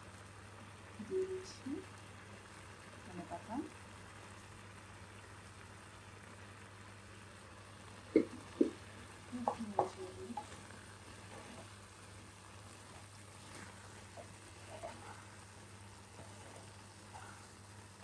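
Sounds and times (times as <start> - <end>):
soft sizzle from pot: 0.0 - 18.0
wooden spatula stirring in pot: 8.2 - 17.9.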